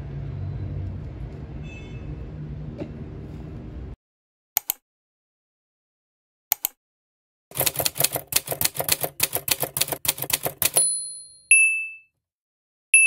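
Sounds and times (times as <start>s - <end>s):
typewriter key clacks: 7.5s - 10.8s
typewriter bell ding: 9.6s - 12.1s.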